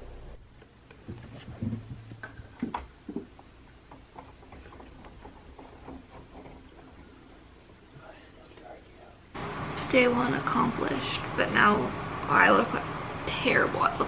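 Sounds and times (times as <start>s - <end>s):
handling clicks and rustles: 0.5s - 8.7s.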